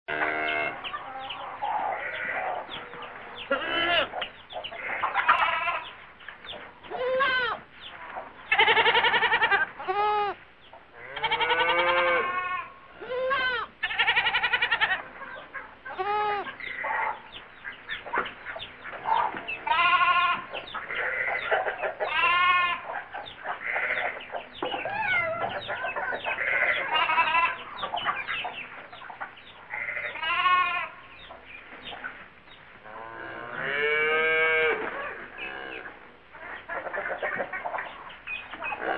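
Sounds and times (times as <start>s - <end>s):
hens clucking: 0.1s - 32.8s, 33.4s - 38.9s
goats bleating: 3.5s - 4.2s, 4.8s - 5.9s, 6.9s - 7.6s, 8.5s - 10.4s, 11.0s - 15.1s, 15.9s - 16.9s, 19.6s - 22.8s, 23.6s - 24.2s, 26.2s - 27.6s, 29.7s - 31.0s.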